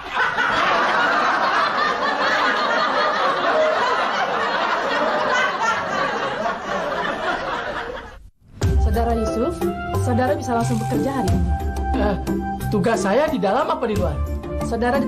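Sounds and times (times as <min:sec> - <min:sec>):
crowd laughing: 0:00.0 - 0:08.3.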